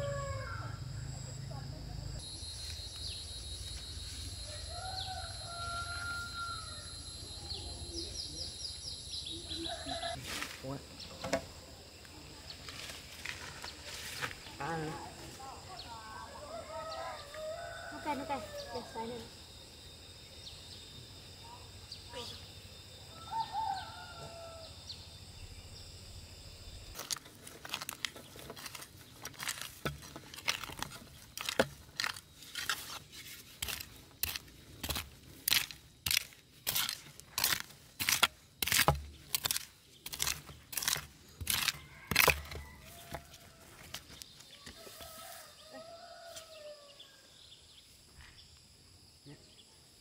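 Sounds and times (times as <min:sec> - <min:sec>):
earth tamped with crunching thuds: 0:26.8 - 0:45.3.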